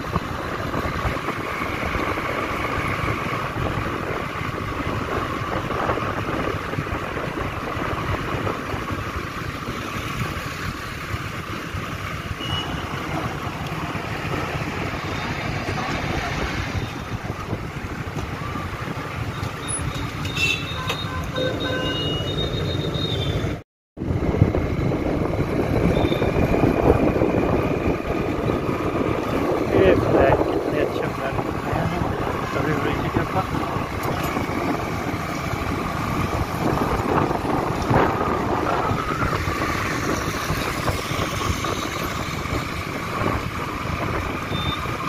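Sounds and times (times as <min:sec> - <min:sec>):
motorbike engine hum: 0:00.0 - 0:45.0
road and wind noise: 0:00.0 - 0:45.0
traffic horn beeps: 0:12.4 - 0:13.0, 0:19.3 - 0:23.5, 0:25.9 - 0:26.3, 0:44.5 - 0:44.9.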